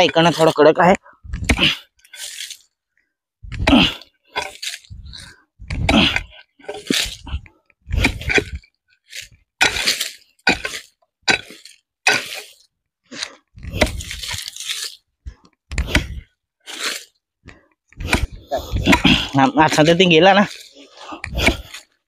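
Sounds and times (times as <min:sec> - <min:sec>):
pickaxe striking hard soil: 0:01.4 - 0:02.6, 0:03.5 - 0:04.9, 0:05.7 - 0:07.3, 0:07.9 - 0:12.6, 0:13.6 - 0:14.9, 0:15.7 - 0:17.0, 0:18.0 - 0:21.9.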